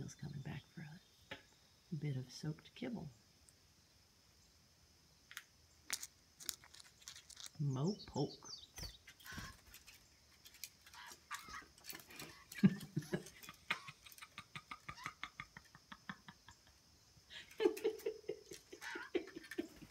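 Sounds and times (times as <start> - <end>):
birds shifting on wooden perch: 8.7 - 14.4.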